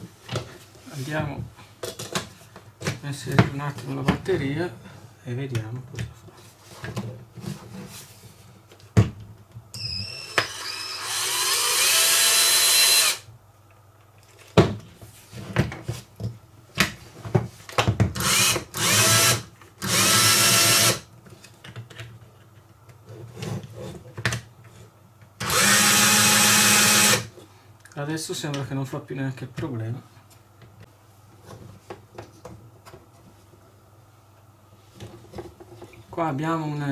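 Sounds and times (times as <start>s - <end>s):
small electric motor whining: 9.8s - 13.2s.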